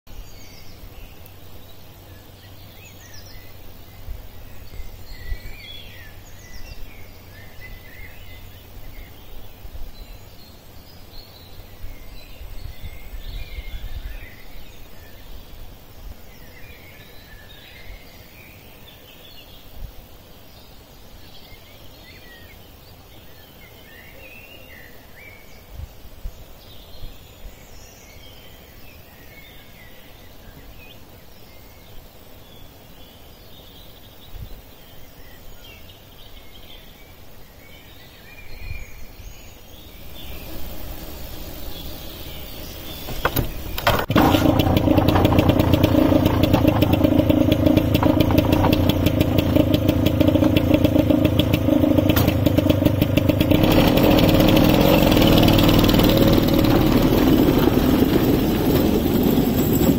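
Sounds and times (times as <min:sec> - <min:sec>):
wind rumble on microphone: 0:11.8 - 0:14.7
birds chirping and whistling: 0:38.4 - 0:59.9.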